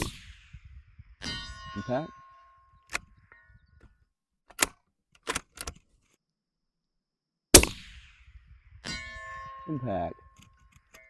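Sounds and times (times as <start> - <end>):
suppressed rifle shot: 0.0 - 0.7, 7.5 - 8.4.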